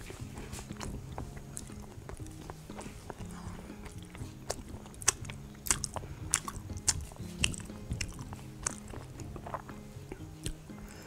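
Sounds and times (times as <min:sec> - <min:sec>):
chewing food close up: 0:00.0 - 0:11.0
mouth clicks and smacks: 0:00.0 - 0:11.0.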